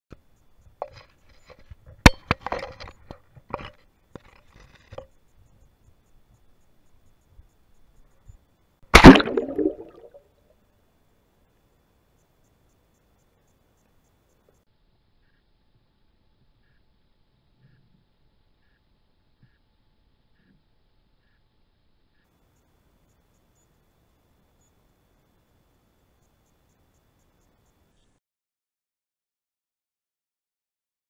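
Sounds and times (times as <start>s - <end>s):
splash into water: 8.9s - 10.2s.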